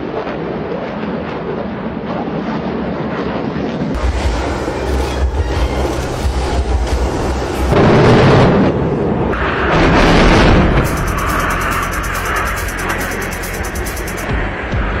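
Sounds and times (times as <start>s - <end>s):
jets roaring overhead: 3.0s - 14.4s.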